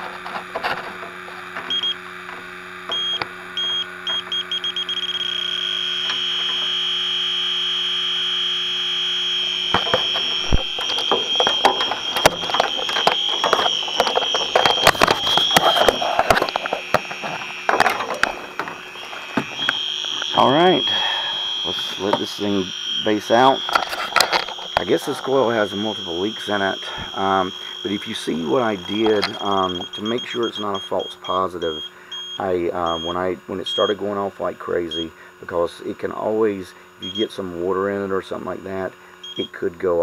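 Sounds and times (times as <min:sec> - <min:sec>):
steady alarm tone: 0:00.6 - 0:39.6
leak detector beeping: 0:00.8 - 0:35.6, 0:37.0 - 0:39.6
probe clattering and rustling: 0:09.5 - 0:20.4, 0:23.6 - 0:25.3.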